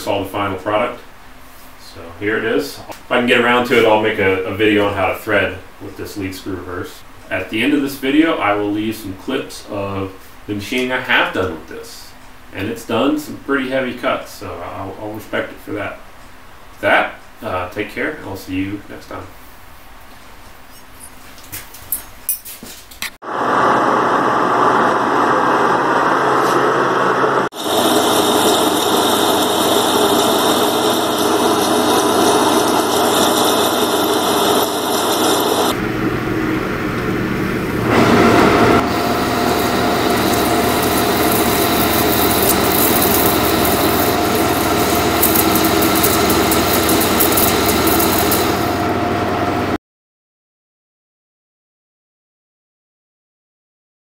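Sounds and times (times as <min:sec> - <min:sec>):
lathe cutting metal: 0:23.3 - 0:49.8.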